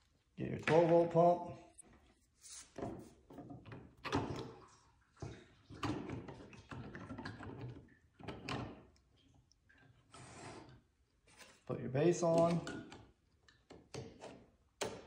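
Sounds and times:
plastic parts knocking and clicking: 12.2 - 15.0.

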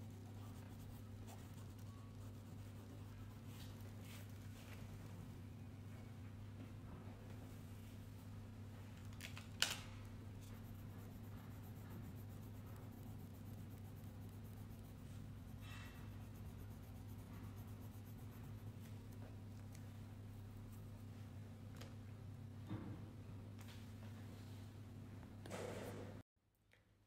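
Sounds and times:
crayon scratching on paper: 0.0 - 3.9, 10.4 - 18.9
steady low hum: 0.0 - 9.0, 9.9 - 26.2.

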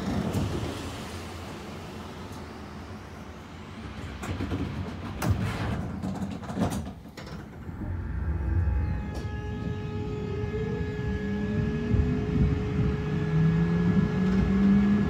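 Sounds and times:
tram rumbling: 0.0 - 15.0
sharp knocks and clacks: 3.8 - 7.7.

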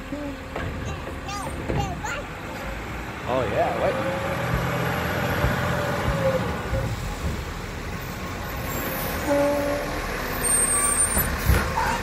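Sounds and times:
garbage truck diesel engine: 0.0 - 12.0
brake squeal: 6.0 - 7.2, 8.0 - 12.0.

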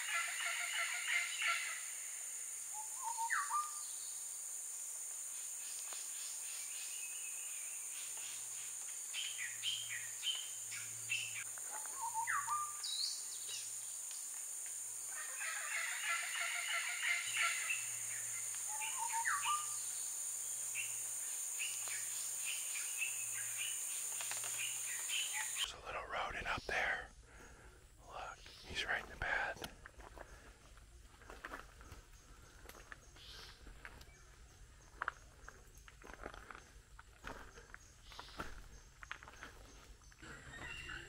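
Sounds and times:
birds chattering: 21.6 - 30.5
birds calling: 37.2 - 41.0.

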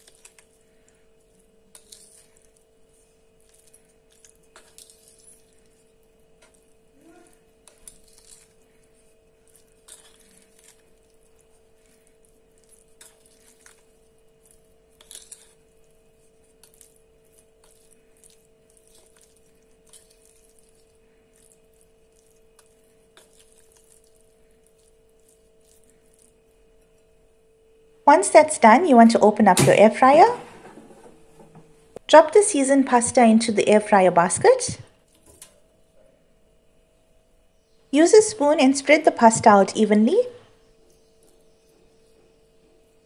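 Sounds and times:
pasta squishing: 0.0 - 27.6
faint steady hum: 0.0 - 43.0.

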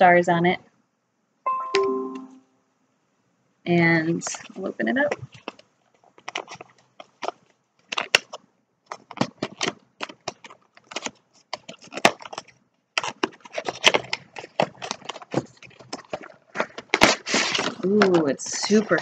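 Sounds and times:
cardboard box being opened: 6.2 - 19.0.

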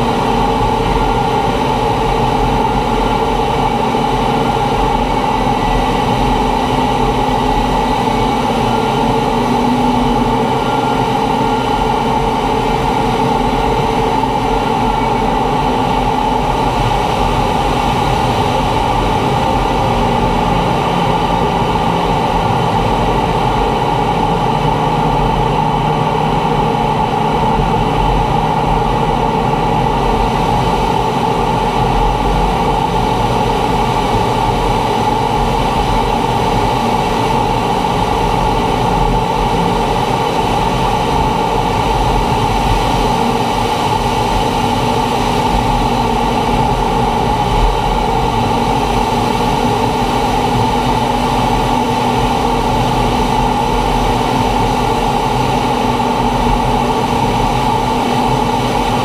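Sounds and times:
constant high tone: 0.0 - 51.5
jet engine noise in cockpit: 0.0 - 59.0
rushing air: 0.0 - 59.0.

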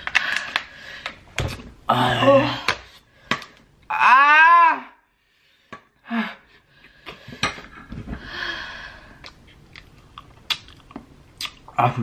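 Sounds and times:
small mouth clicks: 9.2 - 11.6.

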